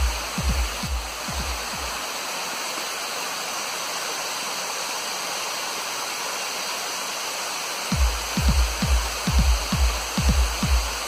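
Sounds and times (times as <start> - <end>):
electronic dance music: 0.0 - 2.0, 7.9 - 11.0
waterfall rushing over rocks: 0.0 - 11.0.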